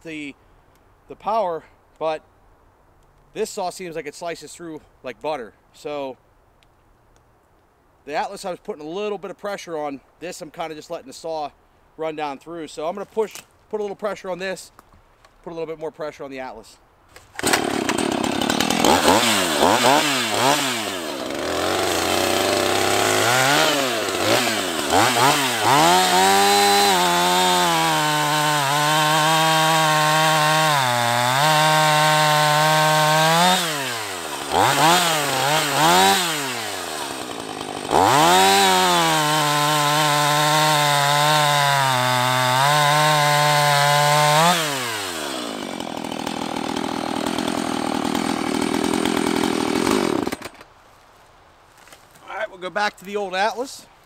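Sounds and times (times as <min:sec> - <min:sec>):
chainsaw cutting log: 0:17.1 - 0:50.7.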